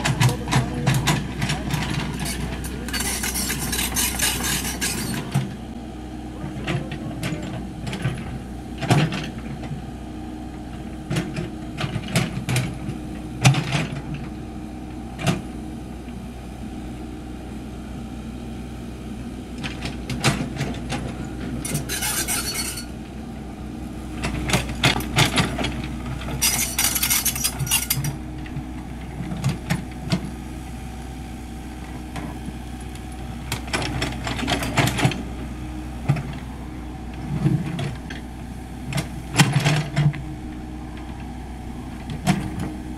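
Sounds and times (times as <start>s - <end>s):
diesel engine running: 0.0s - 42.9s
steel bucket scraping and clanking: 1.8s - 5.4s, 21.6s - 22.9s, 26.4s - 28.2s.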